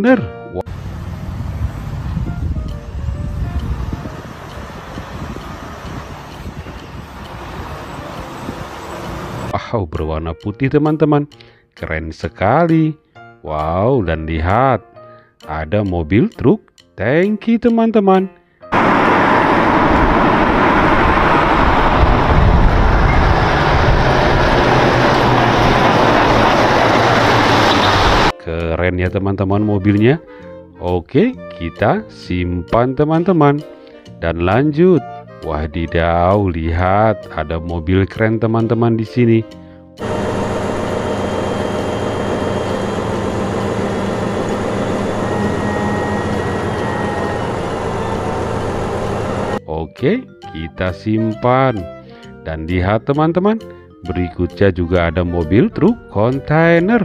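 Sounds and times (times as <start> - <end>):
truck engine driving past: 0.7 - 9.5, 18.7 - 28.3, 40.0 - 49.6
faint high whine: 40.0 - 49.6.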